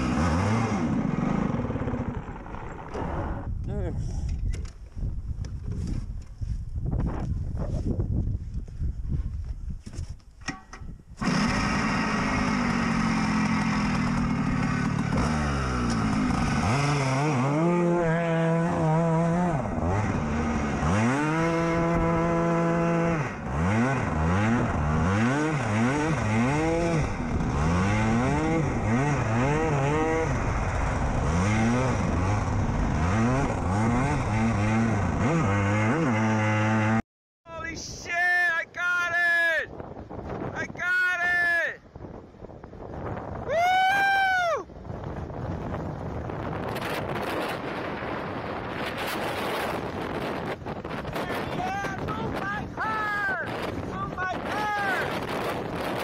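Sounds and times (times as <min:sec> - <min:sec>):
go-kart engine revving: 0:00.0 - 0:03.6, 0:11.2 - 0:37.0.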